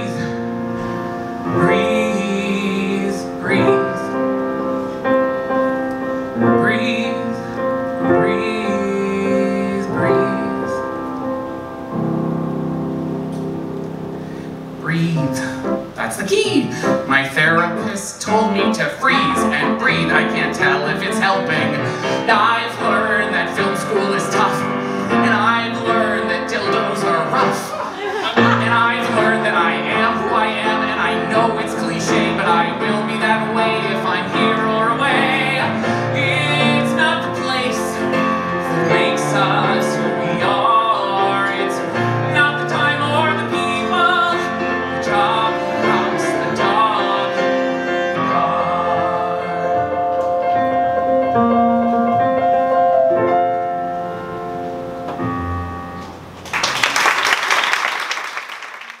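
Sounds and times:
man singing: 0.0 - 0.6, 1.4 - 4.4, 6.3 - 10.9, 14.8 - 52.9
piano and cello: 0.0 - 56.6
audience applause: 56.4 - 59.0.

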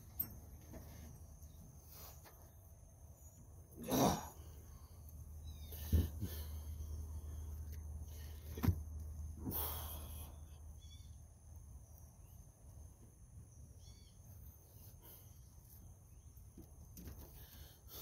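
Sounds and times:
small bird chirping: 4.8 - 7.7, 10.3 - 12.8, 13.4 - 16.6.

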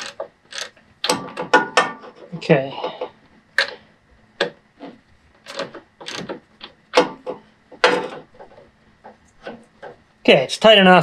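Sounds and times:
cables rubbing: 0.0 - 1.4, 2.0 - 10.2.

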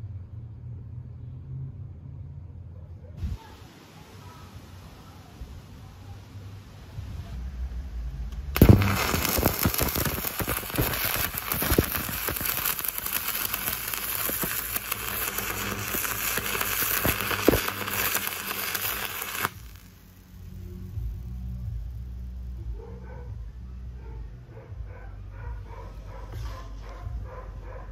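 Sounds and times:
welding arc crackling: 8.4 - 21.9.

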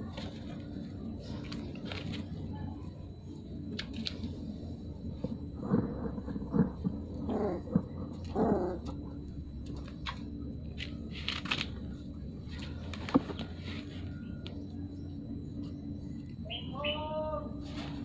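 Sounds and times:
puppies growling and whimpering: 6.5 - 9.2.

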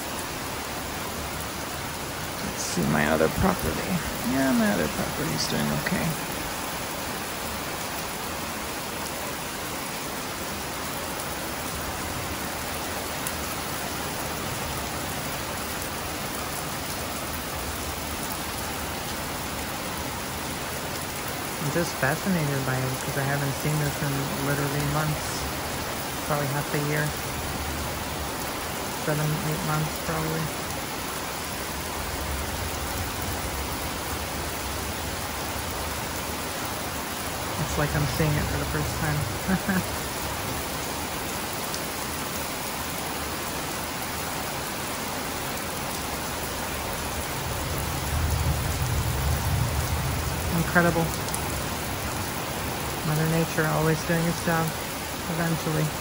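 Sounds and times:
heavy rain pouring: 0.0 - 56.0.

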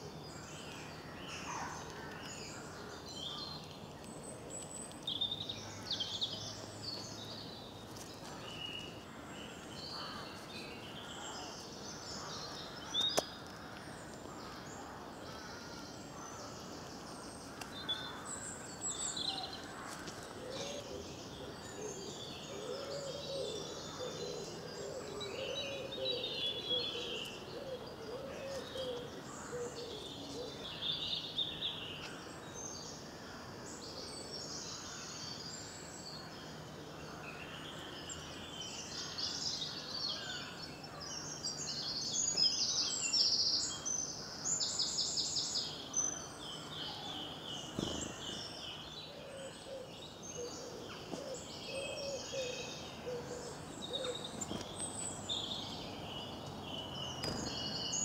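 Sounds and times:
small birds singing: 0.0 - 58.0
low repeated cooing: 20.4 - 30.8, 49.1 - 54.5.

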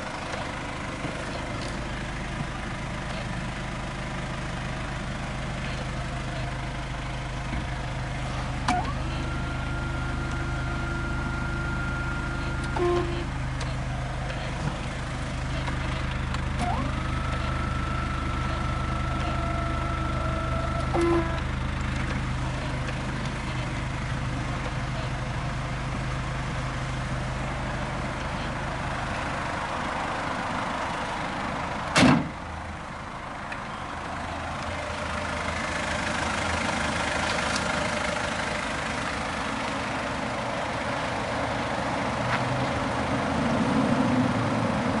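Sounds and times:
diesel engine idling: 0.0 - 45.0
van door slamming: 31.9 - 32.4.

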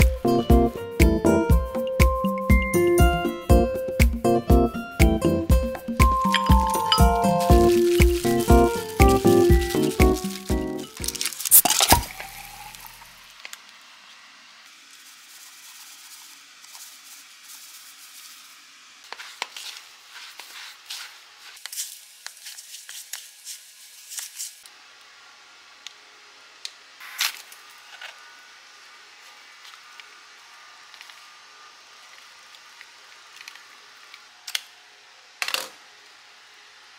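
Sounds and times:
spatula mixing in plastic bowl: 6.0 - 11.6.

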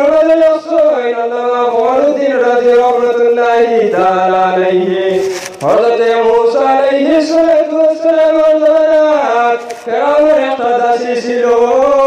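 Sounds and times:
man chanting a sermon: 0.0 - 12.0.

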